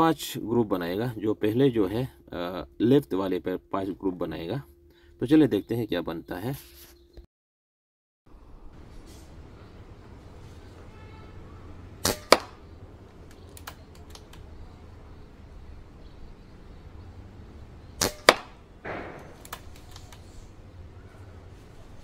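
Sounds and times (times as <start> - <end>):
air rifle shots: 12.0 - 12.6, 18.0 - 20.0
faint clicks: 13.2 - 14.5, 19.3 - 20.3.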